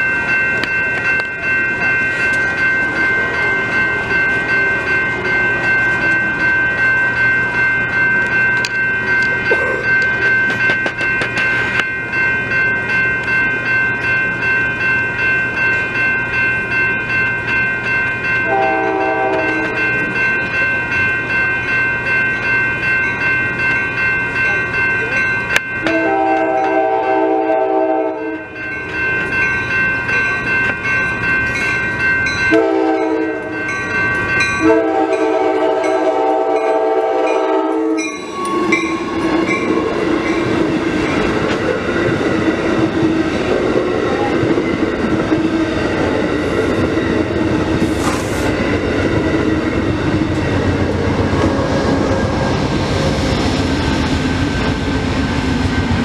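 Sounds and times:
diesel locomotive drone: 0:00.0 - 0:56.0
train wheels rolling on rails: 0:00.0 - 0:56.0
train horn blasts: 0:18.4 - 0:19.8, 0:25.9 - 0:28.6, 0:32.5 - 0:33.6, 0:34.6 - 0:39.3.

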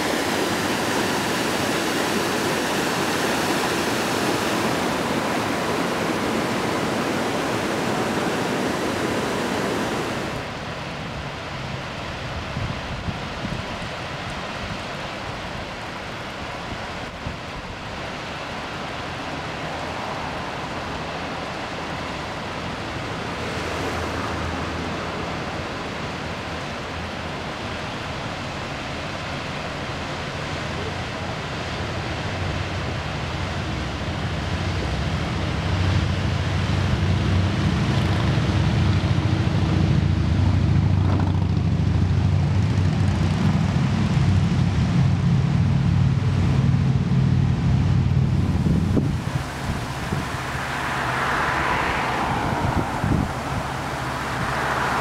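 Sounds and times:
waterfall rushing: 0:00.0 - 0:11.0, 0:48.2 - 0:55.0.

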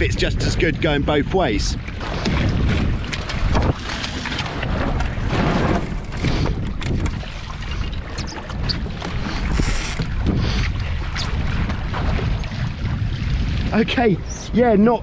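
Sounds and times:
water rushing along hull: 0:00.0 - 0:15.0
wind buffeting microphone: 0:00.0 - 0:15.0.

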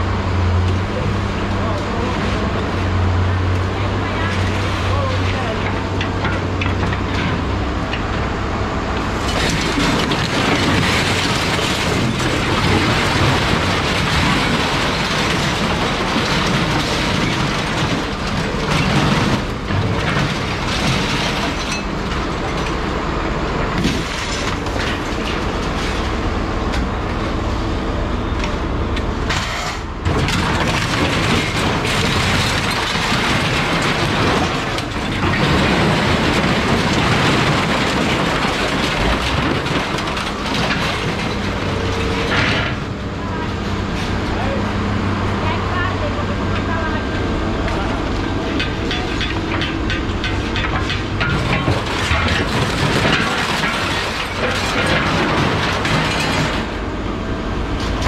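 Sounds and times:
scrap metal rattling and clanking: 0:09.0 - 0:26.3, 0:29.2 - 0:44.6, 0:47.8 - 0:57.0.

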